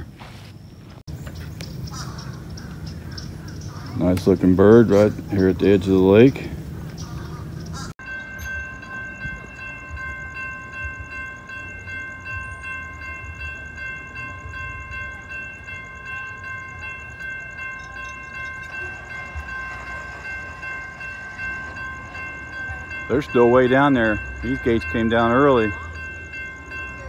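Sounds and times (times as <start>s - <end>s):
crossing warning bell ringing: 1.8s - 27.0s.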